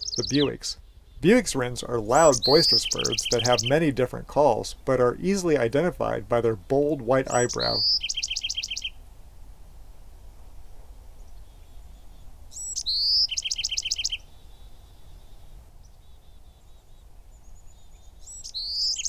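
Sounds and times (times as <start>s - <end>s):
wren singing: 0.0s - 9.0s, 11.3s - 19.0s.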